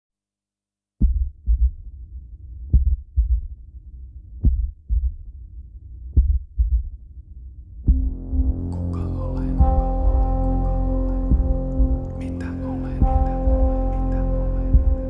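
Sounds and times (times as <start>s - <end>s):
heartbeat thumps: 1.0s - 1.9s, 2.7s - 3.6s, 4.4s - 5.3s, 6.1s - 7.0s, 7.8s - 8.7s, 9.6s - 10.4s, 11.3s - 12.1s, 13.0s - 13.9s, 14.7s - 15.0s
low steady drone: 7.9s - 15.0s.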